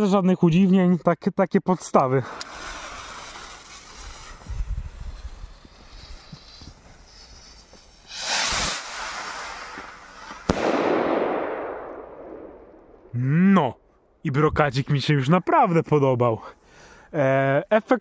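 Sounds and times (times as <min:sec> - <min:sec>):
firework fuse fizzing: 0:01.9 - 0:13.0
rocket launching whoosh: 0:02.2 - 0:13.1
firework bang: 0:02.3 - 0:13.1.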